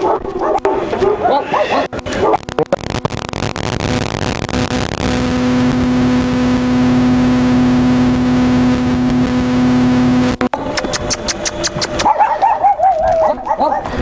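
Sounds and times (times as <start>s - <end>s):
motor running steadily: 3.8s - 12.0s.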